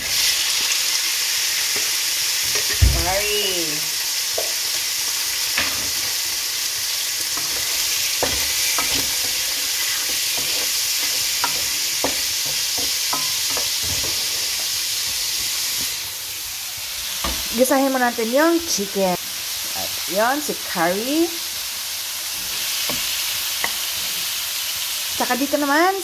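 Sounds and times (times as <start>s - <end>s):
food sizzling in a frying pan: 0.0s - 26.0s
wooden spatula knocking on pan: 10.4s - 14.2s.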